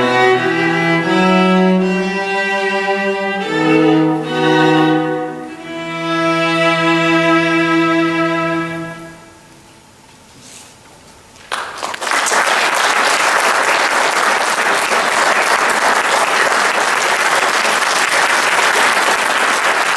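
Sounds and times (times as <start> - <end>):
audience applauding: 11.5 - 19.9.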